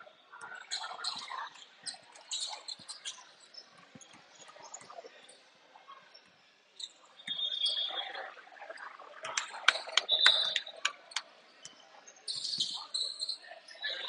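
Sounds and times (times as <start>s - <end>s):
sneakers squeaking: 1.0s - 3.2s, 9.4s - 11.2s, 12.3s - 13.4s.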